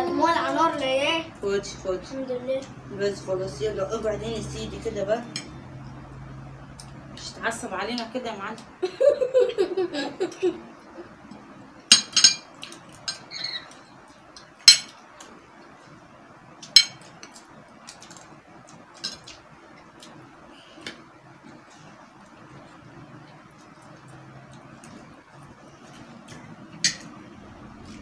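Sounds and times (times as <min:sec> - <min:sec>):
spoons clinking on plates: 0:11.9 - 0:13.4, 0:14.6 - 0:15.0, 0:16.6 - 0:17.4, 0:19.0 - 0:19.4, 0:26.8 - 0:27.2.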